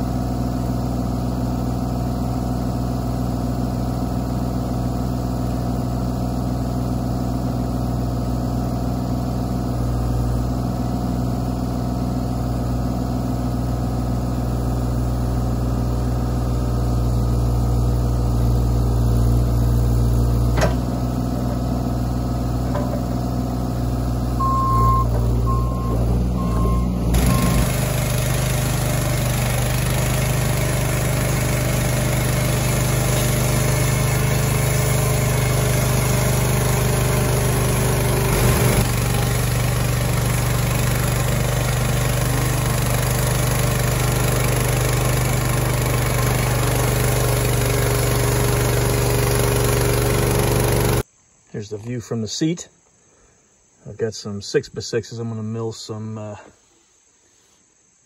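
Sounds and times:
diesel engine running: 0.0s - 51.0s
short high beeps: 24.4s - 27.6s.

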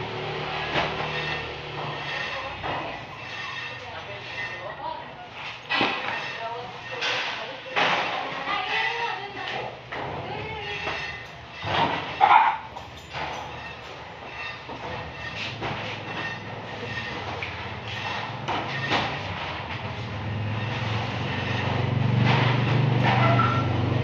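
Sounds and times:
vehicle engine humming: 0.0s - 3.2s, 17.6s - 24.0s.

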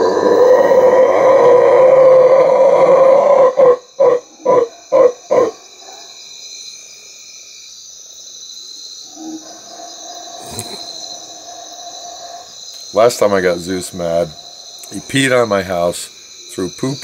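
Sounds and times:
man imitating monkey roar: 0.0s - 5.6s, 10.3s - 11.5s.

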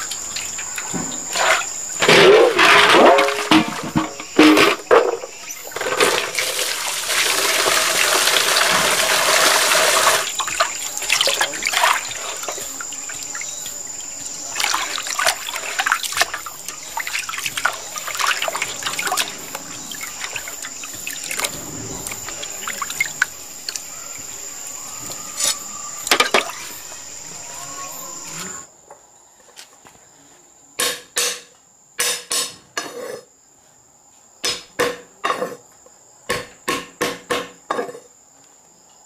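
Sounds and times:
water running into metal basin: 0.0s - 28.4s
hands sloshing in water: 5.8s - 13.4s, 14.4s - 23.8s.

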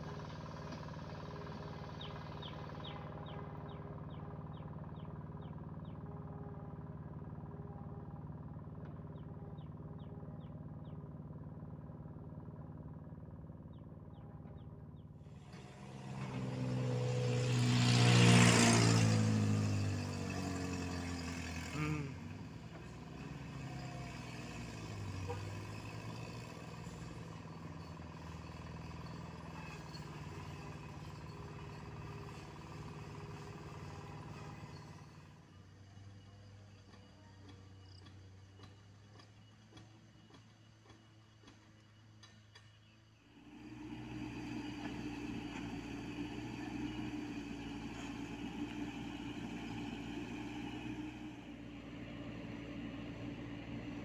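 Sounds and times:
vehicle engines idling: 0.0s - 54.0s.

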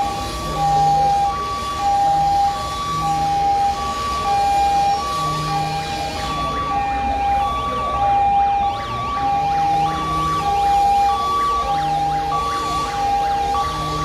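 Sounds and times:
two-tone siren: 0.0s - 14.0s
warbling siren: 0.0s - 14.0s.

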